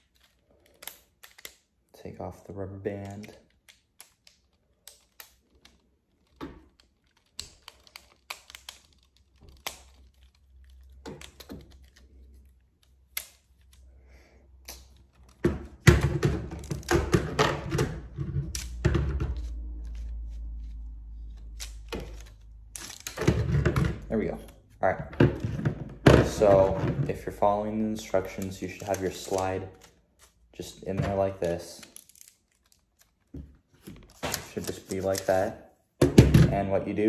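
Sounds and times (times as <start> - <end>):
plastic pieces clicking and clacking: 0.0 - 1.9, 2.8 - 13.9, 14.6 - 24.6, 27.6 - 33.4.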